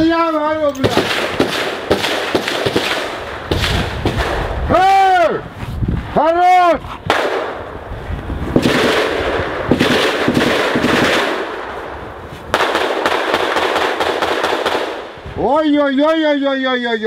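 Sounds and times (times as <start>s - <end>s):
automatic gunfire: 0.8s - 4.4s, 8.6s - 11.6s, 12.5s - 15.1s.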